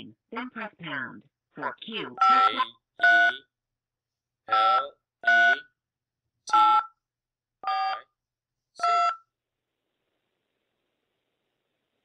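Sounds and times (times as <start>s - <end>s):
keypad tone beeps: 2.2s - 3.4s.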